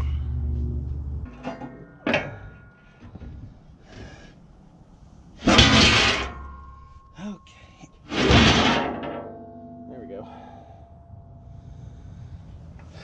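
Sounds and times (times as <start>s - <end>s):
metal plate clanking and ringing: 1.2s - 3.2s, 5.4s - 11.4s.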